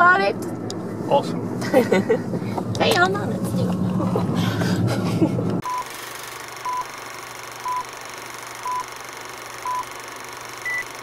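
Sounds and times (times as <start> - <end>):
car interior noise: 0.0 - 5.7
countdown beeps: 5.6 - 5.9.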